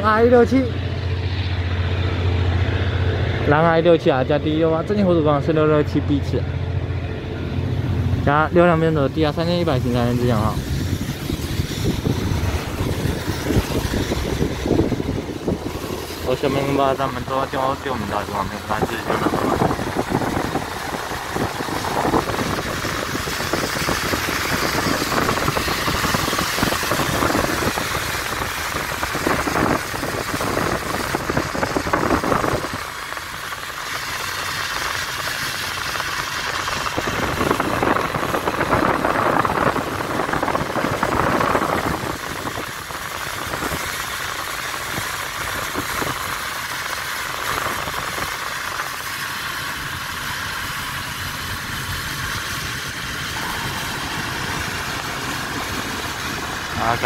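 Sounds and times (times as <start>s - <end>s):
car road and engine noise: 0.0s - 57.0s.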